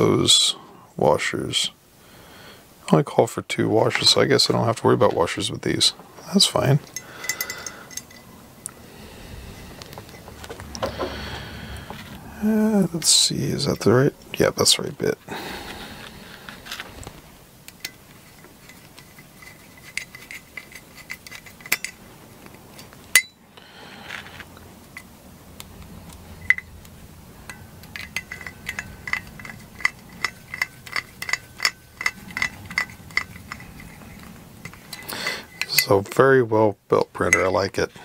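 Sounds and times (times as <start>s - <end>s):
metallic clicks and clinks: 6.5s - 8.8s, 17.7s - 23.4s, 26.1s - 26.8s, 27.4s - 36.3s.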